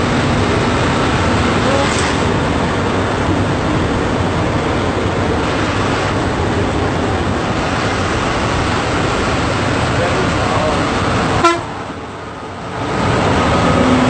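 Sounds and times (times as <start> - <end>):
bus diesel engine drone: 0.0 - 14.0
road and wind noise: 0.0 - 14.0.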